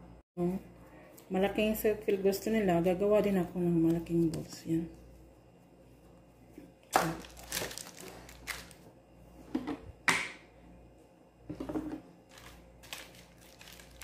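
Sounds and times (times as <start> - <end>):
baking paper crinkling: 7.0 - 8.9, 12.2 - 14.0.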